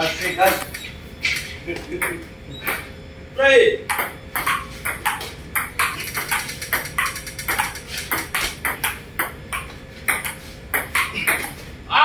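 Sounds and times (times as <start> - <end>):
ball bouncing on table: 3.9 - 11.6
ball clicking off paddles: 3.9 - 11.6.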